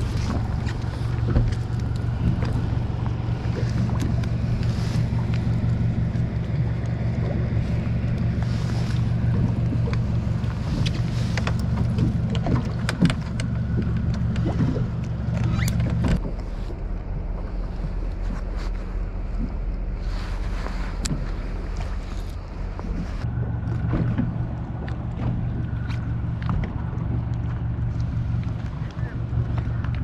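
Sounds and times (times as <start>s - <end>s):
boat engine humming: 0.0s - 30.0s
fishing gear clicks and knocks: 9.8s - 16.2s.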